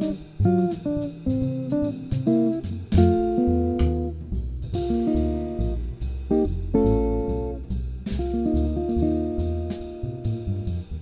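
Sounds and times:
acoustic guitar chords: 0.0s - 7.6s
light cymbal strokes: 0.0s - 11.0s
plucked double bass: 0.0s - 11.0s.

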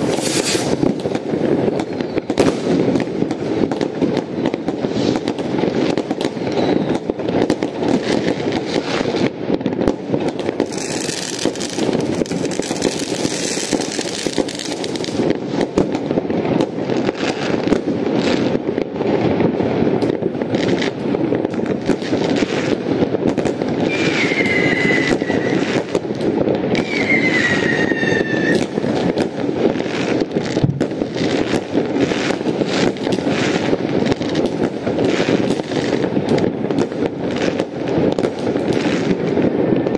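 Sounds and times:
fireworks bangs and crackling: 0.0s - 39.9s
fireworks hissing: 0.0s - 39.9s
falling whistles: 23.9s - 25.6s, 26.8s - 28.6s.

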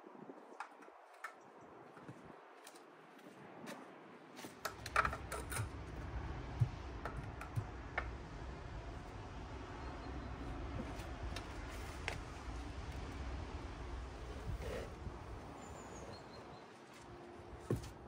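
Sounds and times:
tools knocking and clicking: 4.6s - 6.0s, 6.6s - 8.2s
low steady rumble: 4.9s - 16.1s
footsteps on wooden decking: 16.7s - 18.0s.

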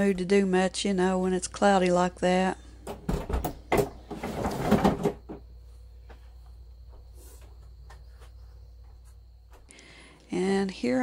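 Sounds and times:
plastic cooler knocking and scraping: 2.9s - 5.5s.

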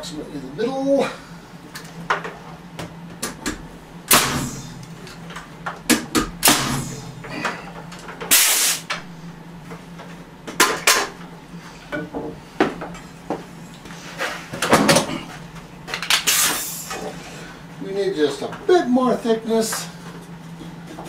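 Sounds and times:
low steady hum: 0.0s - 21.0s
nail gun shots: 4.1s - 4.6s, 5.9s - 7.0s, 8.3s - 8.8s.

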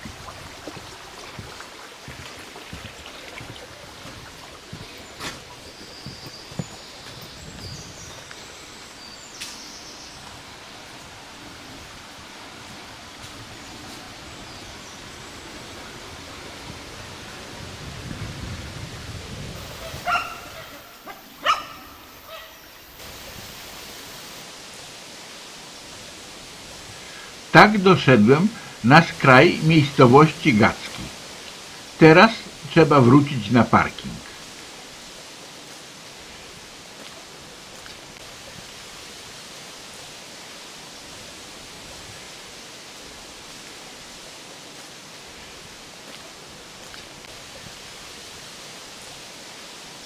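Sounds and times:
outdoor background hiss: 0.0s - 50.0s
dog barking: 19.8s - 22.6s.

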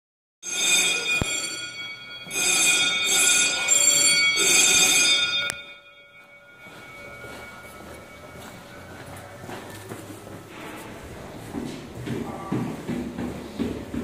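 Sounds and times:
fire alarm ringing: 0.4s - 10.7s.

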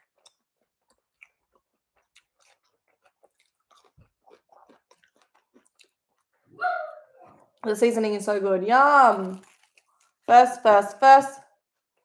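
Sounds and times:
person chewing: 0.0s - 6.6s, 9.0s - 10.3s.

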